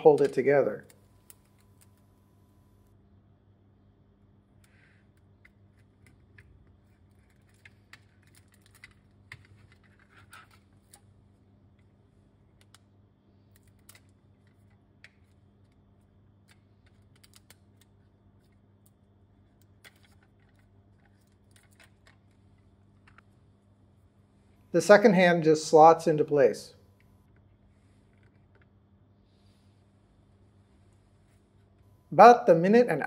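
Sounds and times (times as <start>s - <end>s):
low steady hum: 0.0s - 33.0s
sticky tape clicks and rustles: 16.4s - 23.3s.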